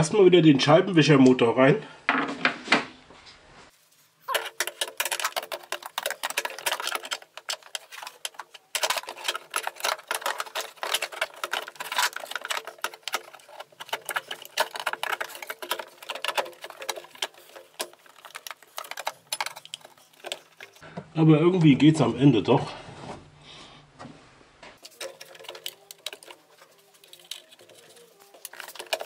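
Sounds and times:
hand tools clicking and clattering: 4.2 - 20.8, 24.8 - 29.0.

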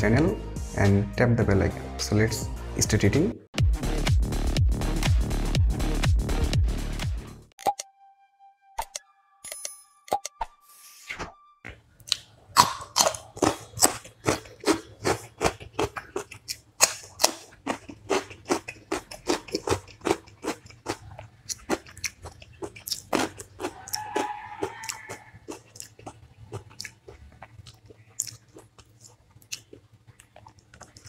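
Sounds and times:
person chewing and crunching food: 11.7 - 31.0.

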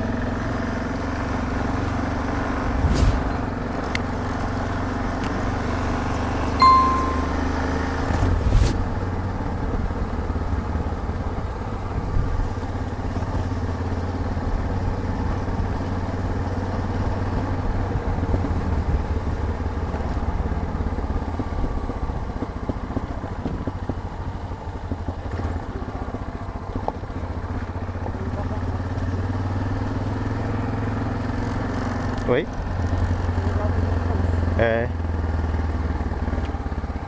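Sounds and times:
motorcycle engine running: 9.1 - 37.0.

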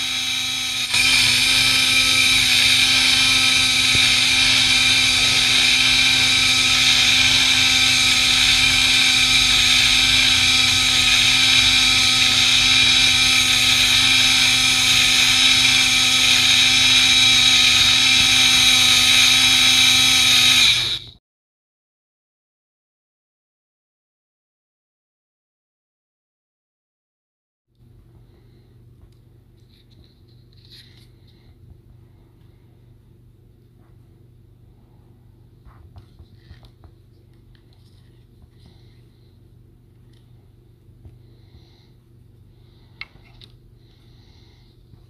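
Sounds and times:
blender motor whine: 0.0 - 21.2.

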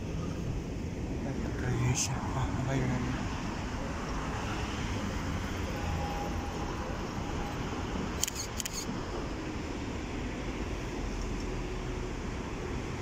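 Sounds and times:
street noise: 0.0 - 13.0
camera shutter clicks: 8.2 - 8.9.

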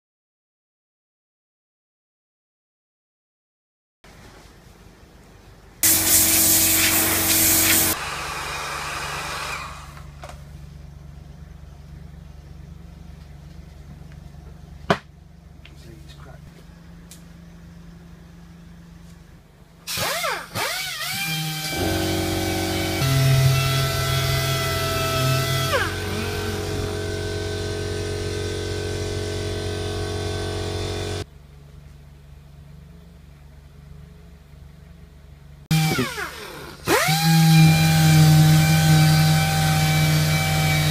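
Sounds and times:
steady low hum: 4.1 - 20.6, 21.7 - 36.9
air blow gun hissing: 5.8 - 10.0
orbital sander motor running: 5.8 - 10.1, 20.0 - 31.2, 35.7 - 40.9.

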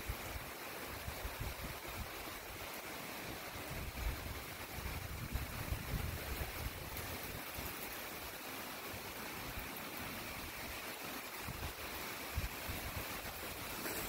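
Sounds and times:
rain hissing on lake water: 0.0 - 14.0
wind: 0.0 - 14.0
wind buffeting the microphone: 0.1 - 2.2, 3.6 - 7.8, 11.3 - 14.0.

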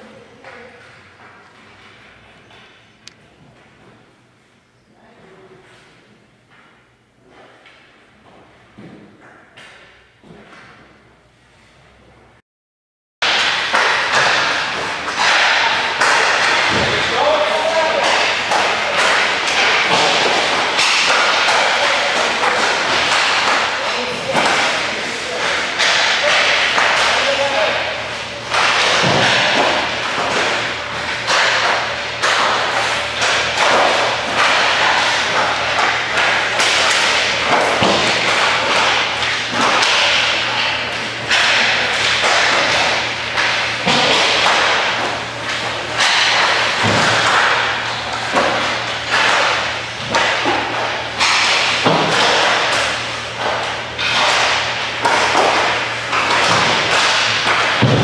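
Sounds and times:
hockey sticks slapping pucks: 13.2 - 58.0
pucks banging into boards: 13.2 - 58.0.

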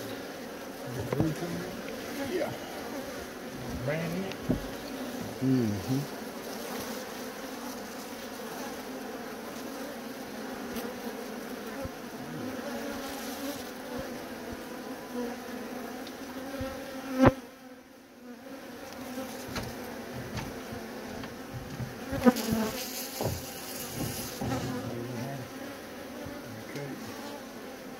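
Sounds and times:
bees buzzing: 0.0 - 27.9
sharp knock: 23.2 - 24.7.

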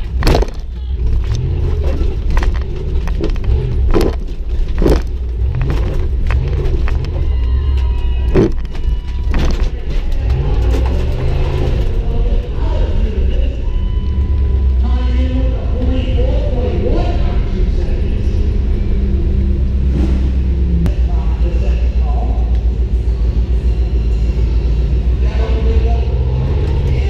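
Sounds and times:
loose items rattling: 0.0 - 7.3, 8.2 - 12.0
knocks and clunks over bumps: 0.0 - 12.1
car engine revving: 0.0 - 27.0.

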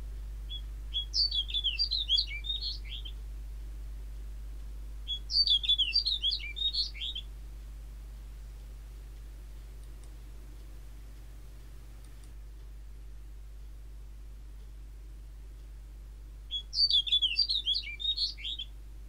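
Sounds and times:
bird warbling song: 0.4 - 3.2, 5.0 - 7.4, 16.5 - 18.8.

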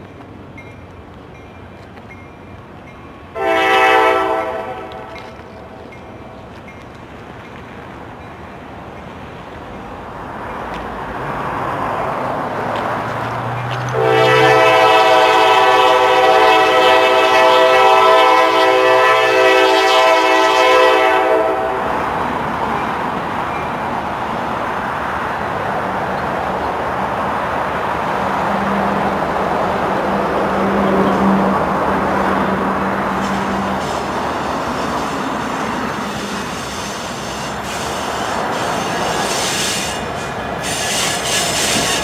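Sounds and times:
locomotive engine and wheels: 0.0 - 42.0
locomotive air horn blast: 3.4 - 5.2, 13.9 - 21.9, 36.0 - 42.0.

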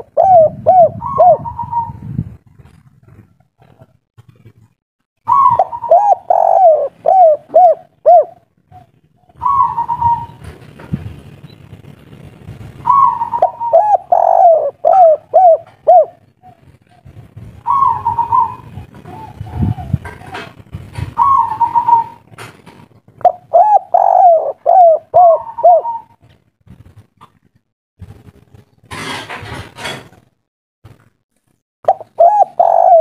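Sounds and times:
dove cooing: 0.0 - 2.1, 5.3 - 10.6, 12.8 - 22.3, 23.2 - 26.3, 31.9 - 33.0.

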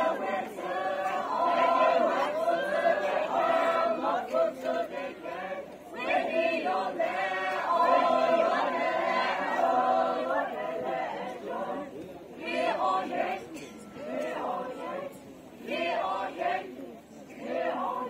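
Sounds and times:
children singing in unison: 0.0 - 11.8.

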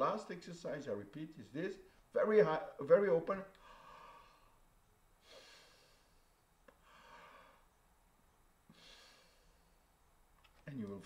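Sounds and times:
man breathing softly: 3.5 - 7.9, 8.6 - 10.2.

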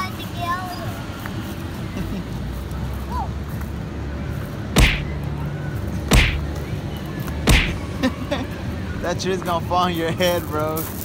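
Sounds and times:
cartoon whip-like crack with thud: 4.8 - 5.2, 6.1 - 6.5, 7.5 - 7.8.

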